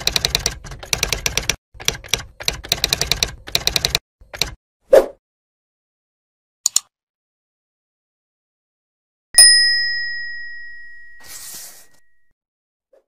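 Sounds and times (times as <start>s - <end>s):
double mouse click: 6.6s - 6.9s
bright bell ding: 9.4s - 12.2s.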